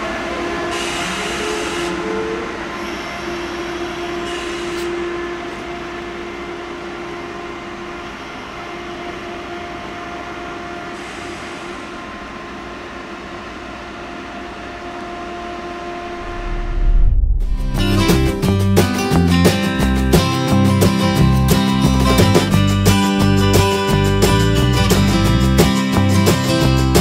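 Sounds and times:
train rolling noise: 0.0 - 27.0
electric hum tones: 14.6 - 19.4
music: 16.1 - 27.0.

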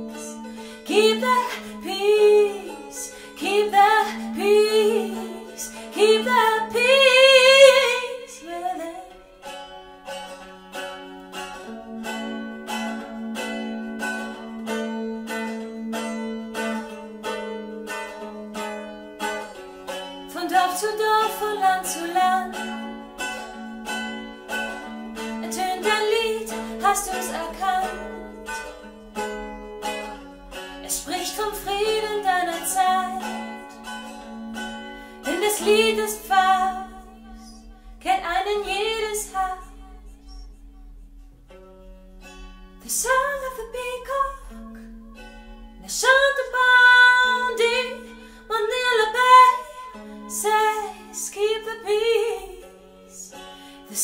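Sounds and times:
woman singing with vibrato: 0.0 - 9.2, 20.3 - 22.8, 25.4 - 28.6, 30.8 - 33.6, 35.3 - 40.6, 42.8 - 45.2, 45.8 - 54.0
strummed mandolin: 0.0 - 54.0.

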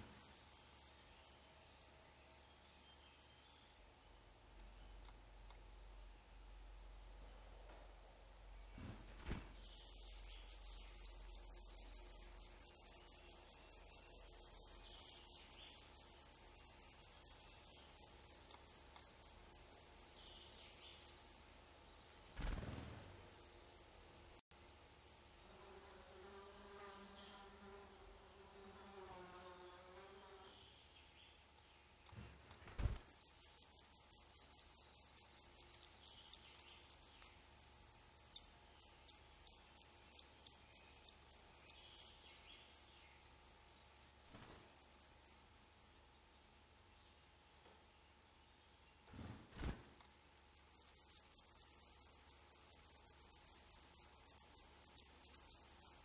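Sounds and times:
nestlings begging calls: 0.0 - 3.6, 9.5 - 28.3, 33.0 - 45.4, 50.5 - 56.0.

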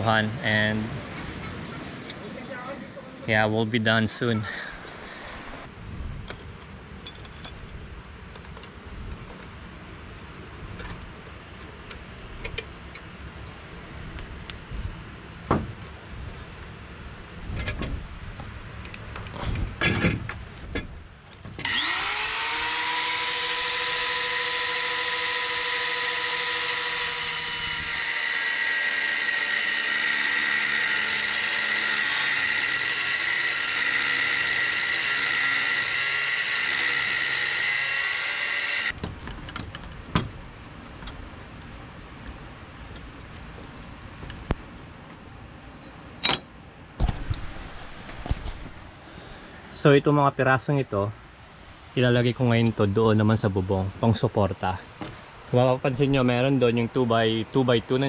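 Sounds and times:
angle grinder cutting steel: 21.6 - 39.0.

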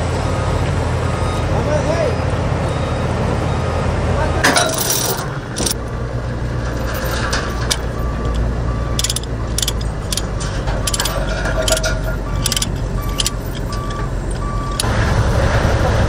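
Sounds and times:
heavy vehicle engine running: 0.0 - 16.0
metallic clinks of chains: 4.6 - 5.8, 6.8 - 14.8.

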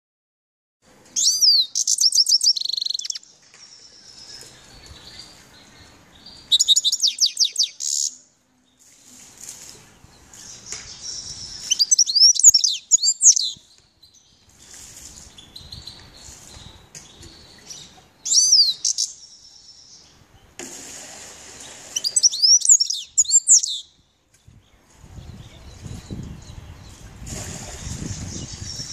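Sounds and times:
finch singing: 1.2 - 8.2, 9.9 - 20.5, 22.0 - 27.0.

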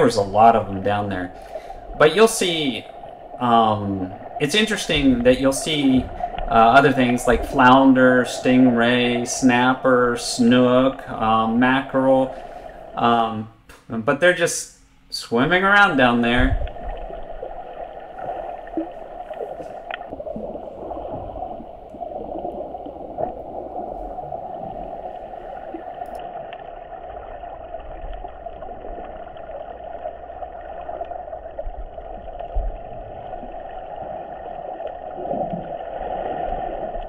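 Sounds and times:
muffled underwater rushing: 0.0 - 13.4, 15.4 - 37.0
low rumble: 16.1 - 26.2
faint clicks: 26.0 - 26.2.

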